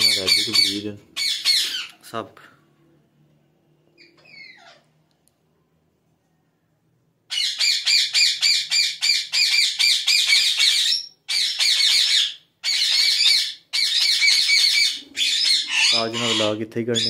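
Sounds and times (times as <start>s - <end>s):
parakeets squawking: 0.0s - 2.0s, 4.0s - 5.0s, 7.3s - 17.0s.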